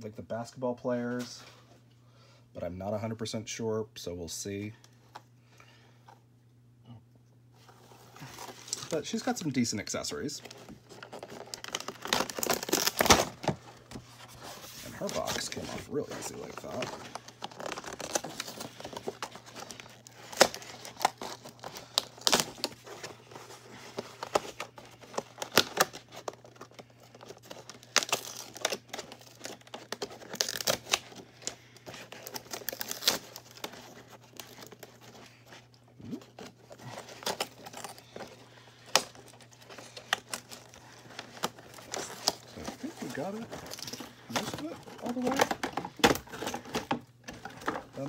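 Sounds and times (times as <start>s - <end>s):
plastic tape crinkling and tearing: 10.5s - 14.0s, 14.6s - 48.0s.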